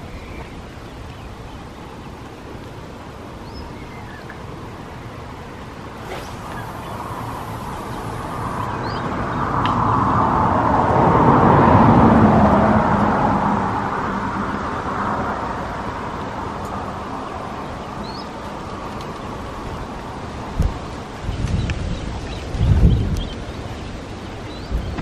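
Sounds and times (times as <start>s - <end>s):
faint bird chirp: 6.0s - 9.1s
vehicle passing: 6.0s - 13.6s.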